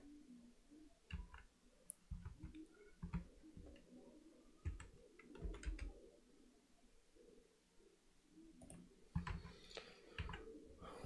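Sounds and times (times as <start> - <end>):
keyboard and mouse clicks: 1.1 - 3.8, 4.6 - 5.9, 8.6 - 10.4.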